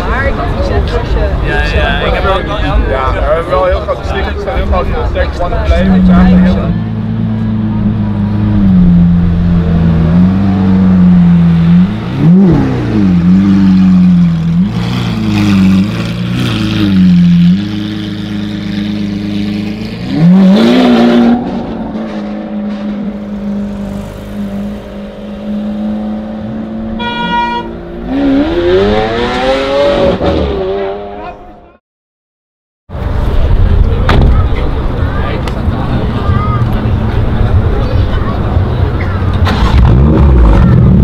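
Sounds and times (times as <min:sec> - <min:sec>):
sports car engine revving: 0:05.7 - 0:31.4, 0:35.4 - 0:41.0.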